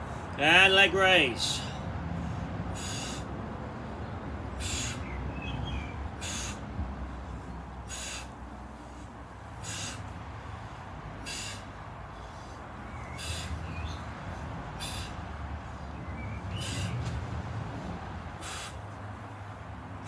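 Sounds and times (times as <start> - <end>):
person exhaling forcefully: 2.8 - 3.3, 6.2 - 6.7, 7.9 - 8.4, 9.6 - 10.1, 11.2 - 11.8, 14.8 - 15.2, 18.4 - 18.8.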